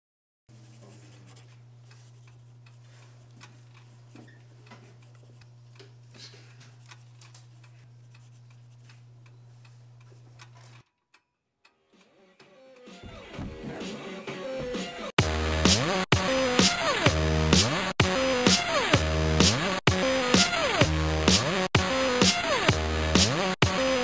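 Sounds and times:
steady low hum: 0:00.5 - 0:10.8.

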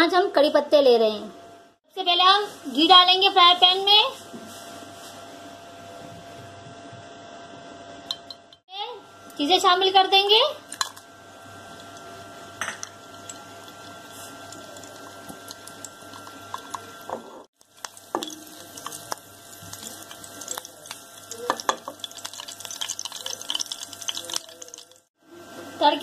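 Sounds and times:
spices sizzling and crackling in ghee: 0:09.4 - 0:25.1.

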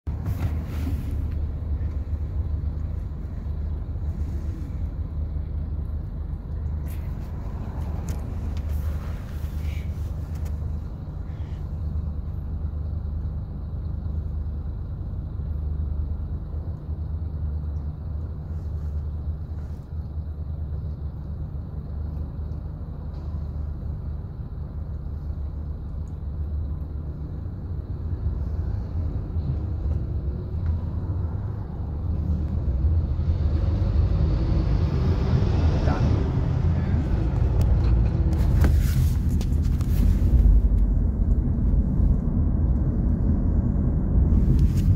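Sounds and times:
muffled traffic engines rumbling: 0:00.0 - 0:44.9.

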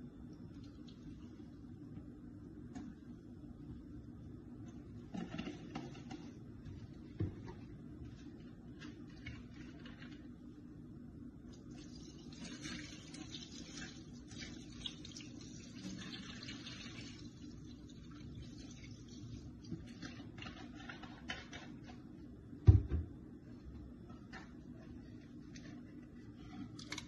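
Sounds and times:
liquid pouring and splashing: 0:11.6 - 0:20.1.

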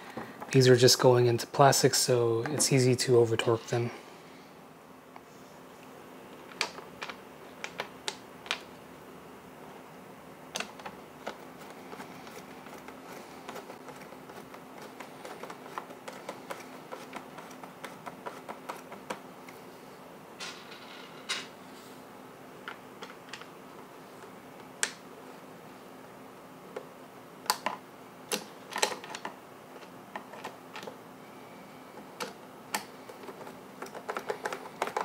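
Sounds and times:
plastic parts clicking and tapping: 0:06.5 - 0:08.7, 0:10.5 - 0:19.2, 0:27.5 - 0:31.0, 0:32.0 - 0:35.0.

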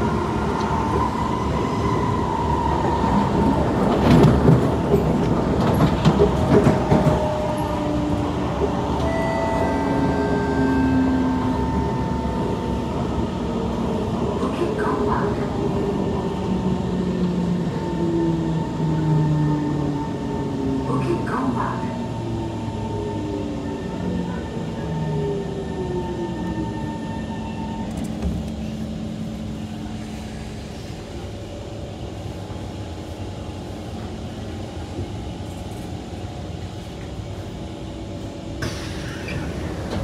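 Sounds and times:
train car humming: 0:00.0 - 0:40.0
train doors opening rush: 0:00.0 - 0:40.0.

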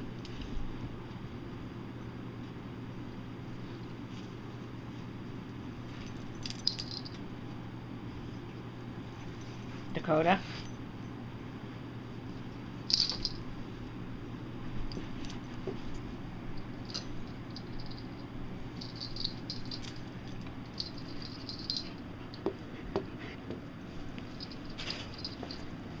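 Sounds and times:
dog collar jingling: 0:06.2 - 0:07.2, 0:12.9 - 0:13.4, 0:16.9 - 0:18.2, 0:18.8 - 0:22.0, 0:24.3 - 0:25.7
soft rustles and taps: 0:14.8 - 0:16.1.

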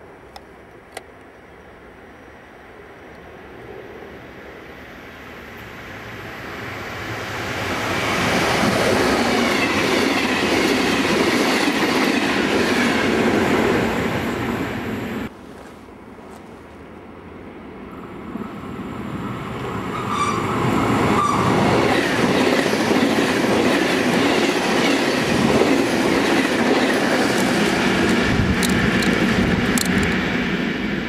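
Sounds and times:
passenger train passing: 0:01.4 - 0:31.0
sharp clicks: 0:28.6 - 0:30.2.

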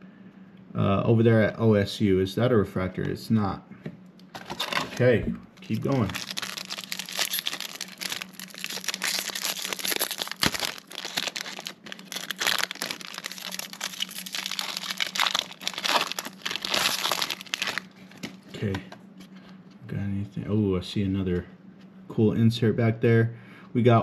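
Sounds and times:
foil wrapper crinkling and tearing: 0:04.4 - 0:18.4.

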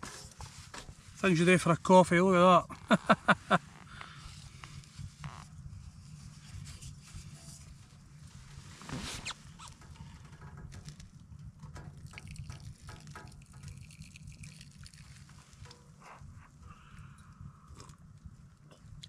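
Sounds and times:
water trickling and dripping: 0:11.7 - 0:15.8
person sipping: 0:13.8 - 0:15.4, 0:16.1 - 0:19.0.

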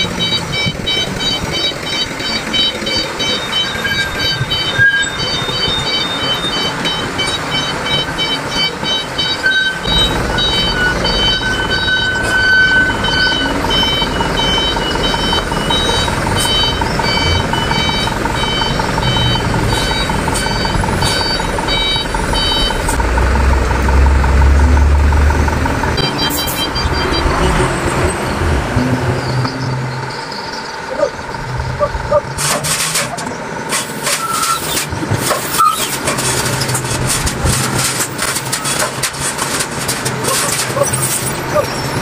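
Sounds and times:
reversing alarm beeping: 0:00.0 - 0:25.2, 0:26.0 - 0:33.1, 0:34.1 - 0:34.8
diesel truck engine running: 0:00.0 - 0:42.0.

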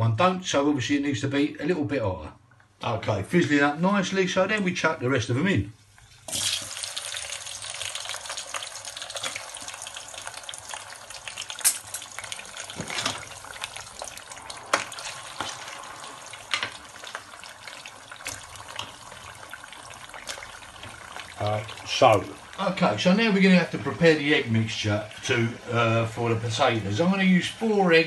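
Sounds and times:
potatoes sizzling in hot oil: 0:06.2 - 0:28.0.

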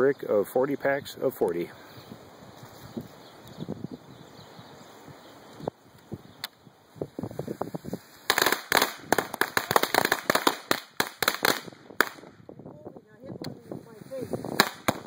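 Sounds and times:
soft crackles: 0:01.3 - 0:03.7
firecrackers banging: 0:08.2 - 0:12.3, 0:14.5 - 0:15.0.

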